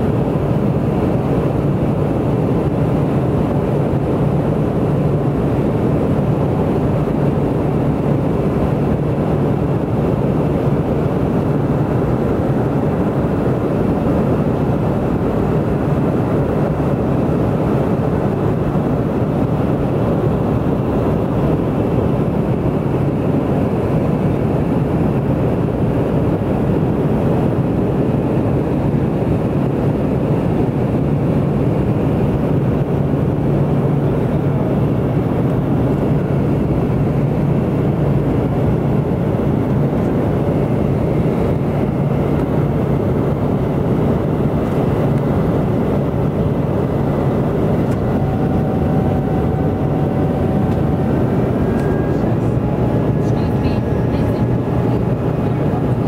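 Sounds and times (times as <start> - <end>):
propeller airplane cabin noise: 0.0 - 56.0.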